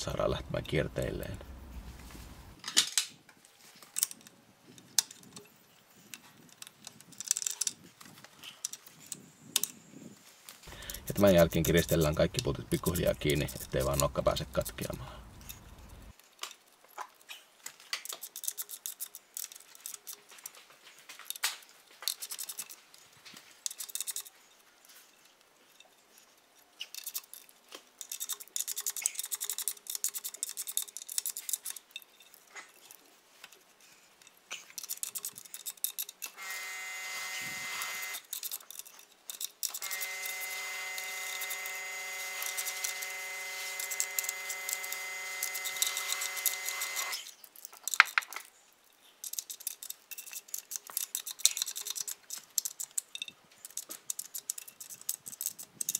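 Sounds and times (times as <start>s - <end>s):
hand ratchet clicking: 10.7s - 16.1s, 37.7s - 47.3s, 49.2s - 55.9s.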